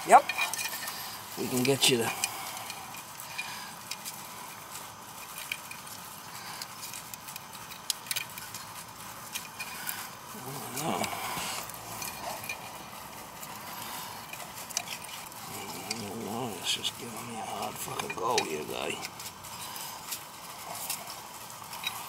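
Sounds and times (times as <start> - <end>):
steady hiss: 0.0 - 22.0
person muttering: 10.3 - 11.9, 15.4 - 19.1.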